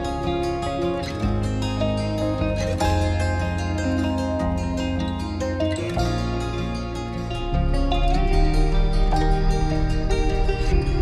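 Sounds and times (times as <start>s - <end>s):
instrumental music with plucked strings: 0.0s - 11.0s
deep bass note: 7.8s - 11.0s.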